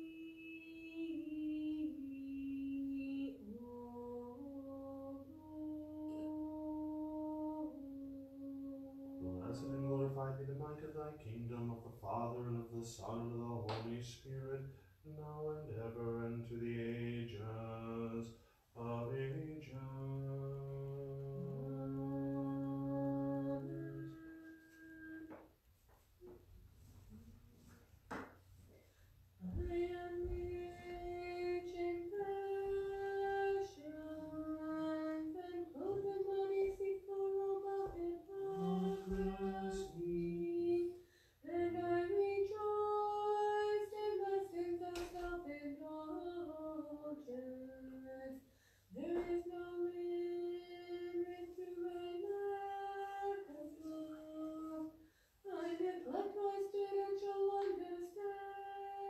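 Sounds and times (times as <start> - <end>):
woman chanting a hymn: 29.5 - 59.0
woman breathing: 41.0 - 41.4, 48.4 - 49.0, 55.0 - 55.4.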